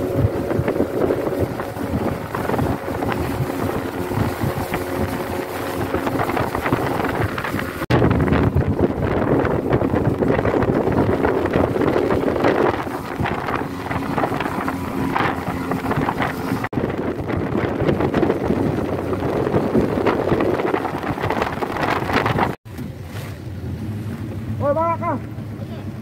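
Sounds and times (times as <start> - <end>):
rushing spray and water: 0.0 - 7.9
outboard motor: 0.0 - 26.0
wind buffeting microphone: 0.0 - 26.0.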